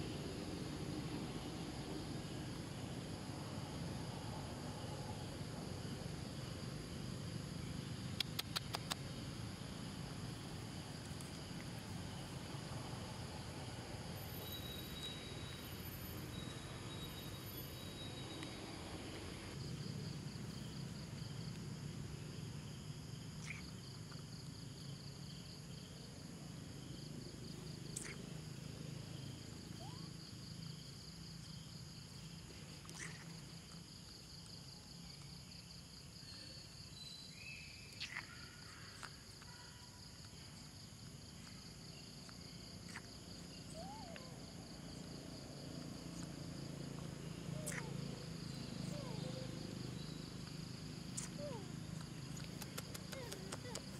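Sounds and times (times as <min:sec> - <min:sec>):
insects chirring: 0:00.0 - 0:53.9
faint clicks: 0:52.0 - 0:53.9.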